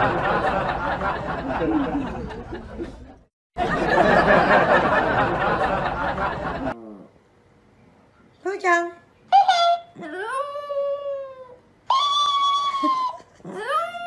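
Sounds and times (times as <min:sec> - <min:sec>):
people chattering and laughing: 0:00.0 - 0:06.8.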